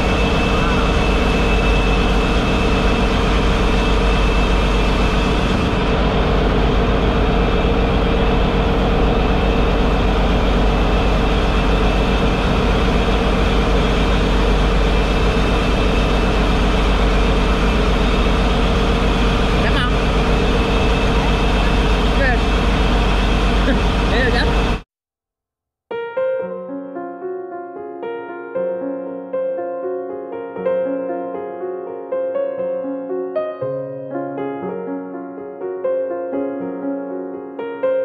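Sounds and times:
diesel engine drone: 0:00.0 - 0:24.8.

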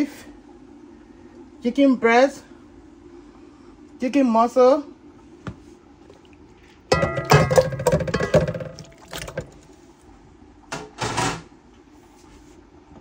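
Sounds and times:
dish clattering against pot: 0:06.9 - 0:09.6
meat pieces tipped into pot: 0:06.9 - 0:09.6.

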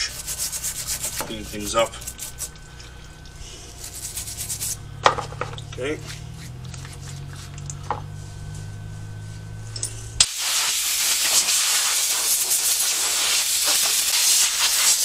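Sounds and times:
low steady hum: 0:00.0 - 0:11.4
air blow gun hissing: 0:10.2 - 0:15.0.

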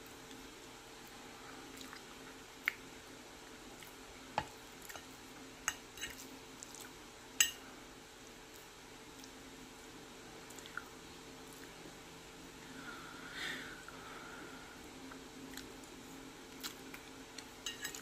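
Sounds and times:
wet squishing of food: 0:00.0 - 0:07.4, 0:08.1 - 0:12.6, 0:14.8 - 0:18.0.

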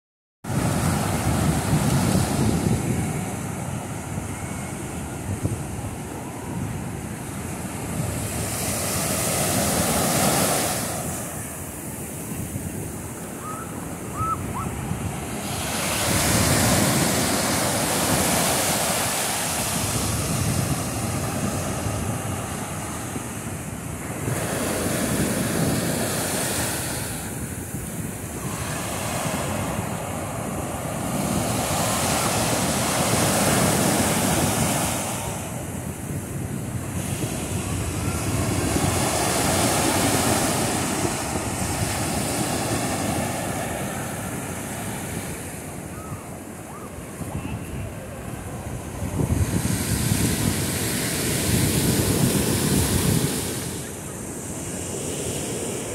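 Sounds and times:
surf washing up sandy beach: 0:00.5 - 0:55.9
wind rumbling on microphone: 0:00.5 - 0:55.9.

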